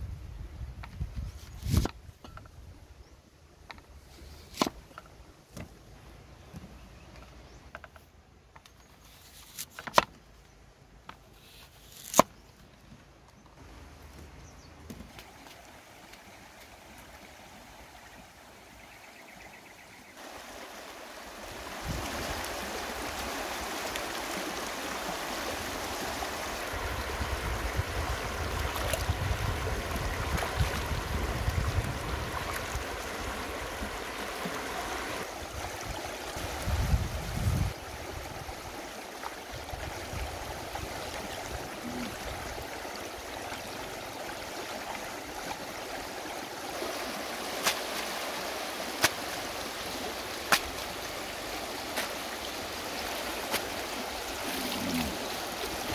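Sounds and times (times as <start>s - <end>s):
stream rushing over rocks: 15.1s - 18.9s, 20.2s - 55.9s
water splashing: 20.2s - 55.9s.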